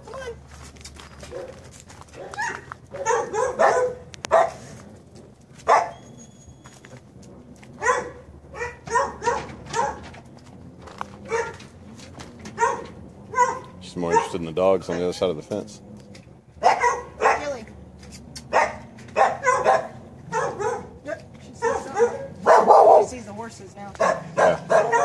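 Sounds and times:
dogs barking: 0:01.2 - 0:05.0, 0:05.6 - 0:06.2, 0:07.6 - 0:10.3, 0:11.1 - 0:15.5, 0:16.6 - 0:17.6, 0:18.4 - 0:23.2, 0:23.9 - 0:25.0.

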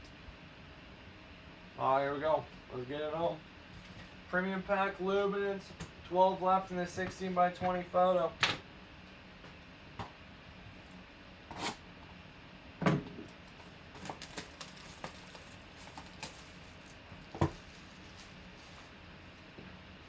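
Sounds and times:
plastic wrap and cardboard crinkling: 0:13.4 - 0:19.5.

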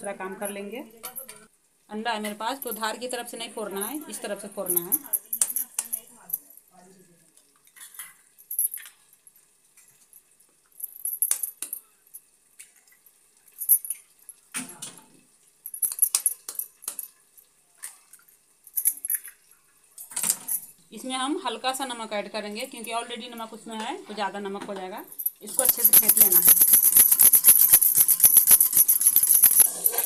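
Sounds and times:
light metal clinks: 0:25.1 - 0:30.0.

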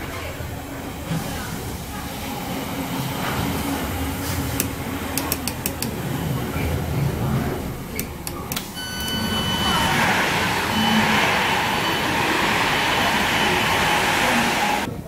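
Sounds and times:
beep: 0:08.8 - 0:14.1
air hiss of sliding door: 0:09.2 - 0:14.9.

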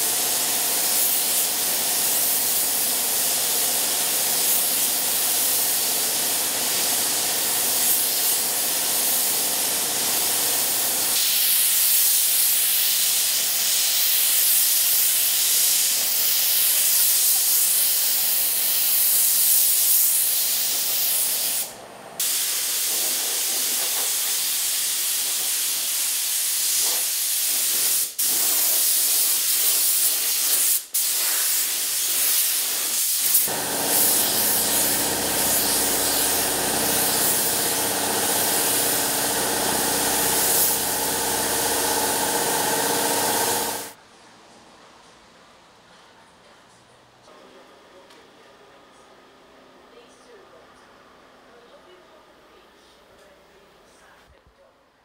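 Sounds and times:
paint spray gun hissing: 0:00.0 - 0:44.0.

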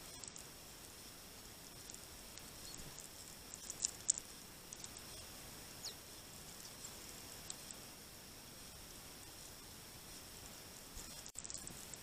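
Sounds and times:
beaks pecking at seed: 0:00.0 - 0:12.0
thin bird call: 0:04.8 - 0:07.8.

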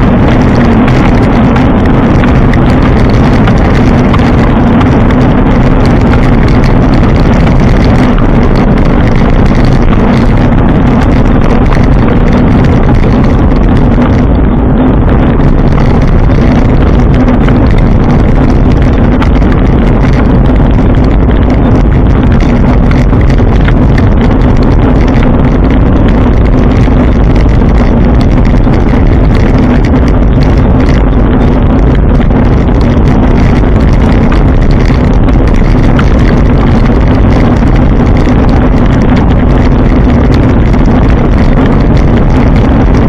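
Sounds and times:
bike riding drone: 0:00.0 - 0:43.0
wind on microphone: 0:00.0 - 0:43.0.

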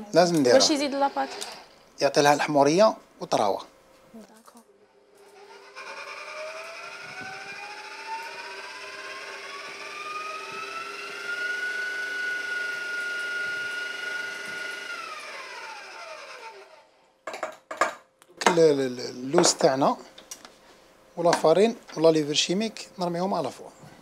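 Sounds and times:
stand mixer motor whining: 0:05.2 - 0:16.9
beater mixing batter in steel bowl: 0:05.3 - 0:16.7.

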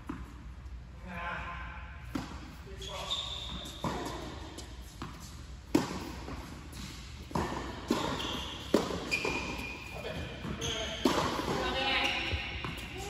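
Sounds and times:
tennis balls bouncing on court: 0:02.1 - 0:02.5, 0:03.4 - 0:13.0
shoe squeaks on court: 0:02.7 - 0:04.2, 0:07.9 - 0:11.2
tennis balls struck by rackets: 0:03.5 - 0:13.0.

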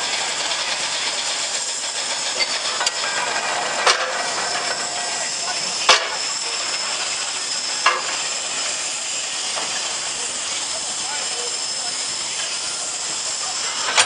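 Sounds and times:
steam hiss: 0:00.0 - 0:14.0.

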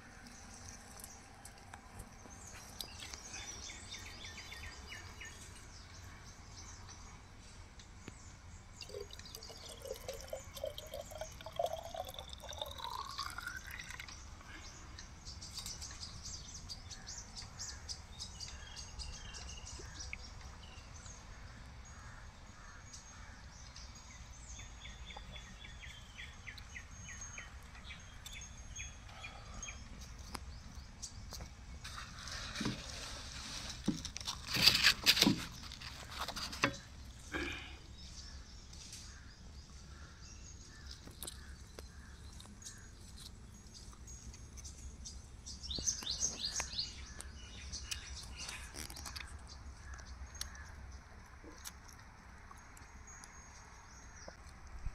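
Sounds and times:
liquid pouring into container: 0:08.8 - 0:14.2.

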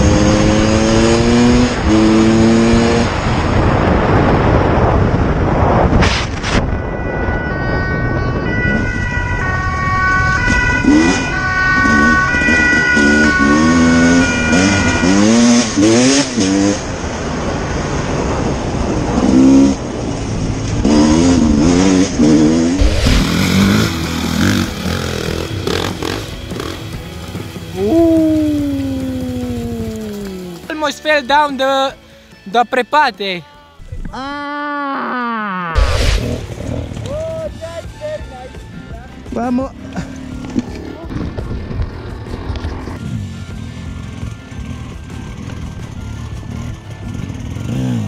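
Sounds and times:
dirt bike engines revving: 0:00.0 - 0:03.5, 0:10.0 - 0:32.0, 0:35.7 - 0:48.0
siren in alternating tones: 0:06.4 - 0:15.9, 0:22.7 - 0:26.0.

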